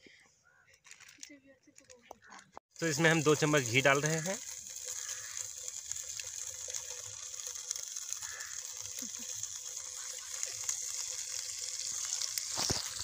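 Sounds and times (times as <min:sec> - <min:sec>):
ghee sizzling in a pan: 0:02.7 - 0:13.0.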